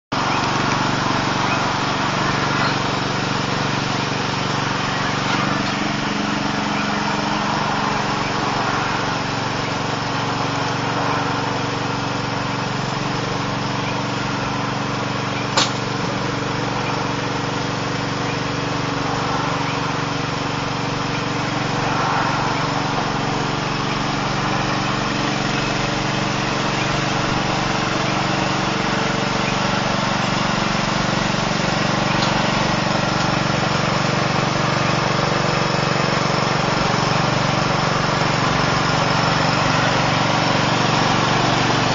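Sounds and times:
lawn mower engine running: 0.1s - 41.9s
sharp click: 15.6s - 15.9s.

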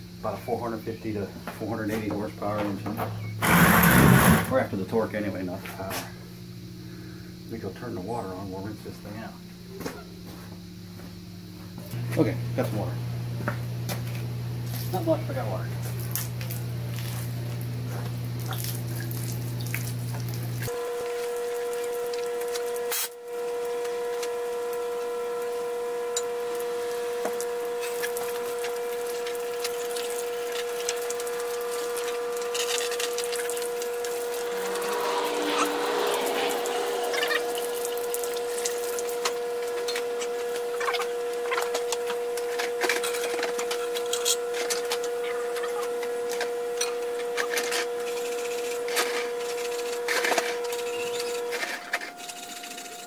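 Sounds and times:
hose water spraying on metal: 18.3s - 23.1s, 26.5s - 39.3s
steady whining tone: 20.7s - 53.0s.

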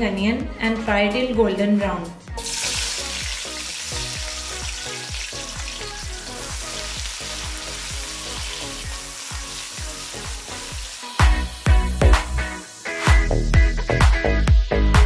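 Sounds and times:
onions sizzling in hot oil: 2.4s - 13.5s.

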